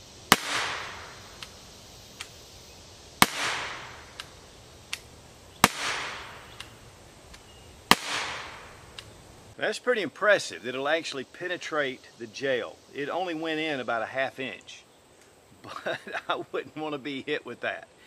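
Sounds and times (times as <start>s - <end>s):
air revolver shots: 0.3s - 1.6s, 3.2s - 6.8s, 7.9s - 9.1s
faint clicks: 1.4s - 2.4s, 4.2s - 5.1s, 6.5s - 7.5s, 8.9s - 9.1s.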